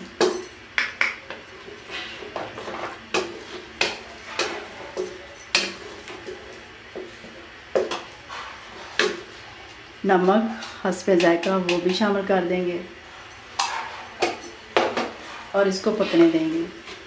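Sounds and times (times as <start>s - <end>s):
wooden spatula scraping a pan: 1.9s - 9.3s, 13.6s - 14.3s, 14.9s - 17.0s.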